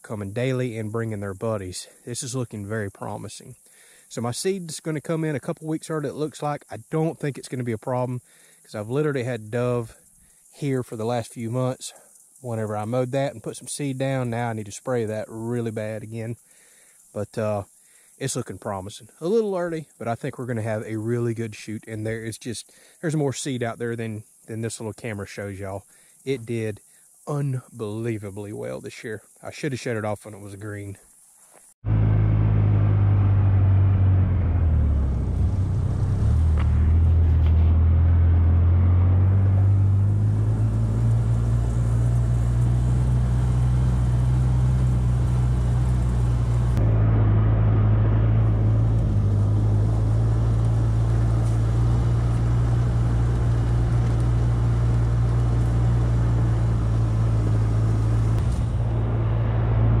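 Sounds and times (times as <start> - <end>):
vehicle engine running: 31.8 - 60.0.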